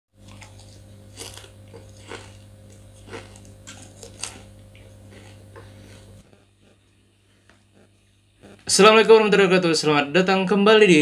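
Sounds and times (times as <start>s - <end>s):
person chewing leaves crunching: 0.2s - 8.6s
steady low hum: 0.2s - 11.0s.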